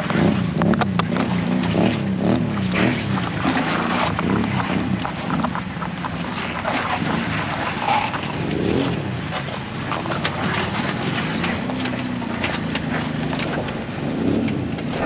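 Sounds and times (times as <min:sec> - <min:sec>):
vehicle engine revving: 0:00.0 - 0:05.6.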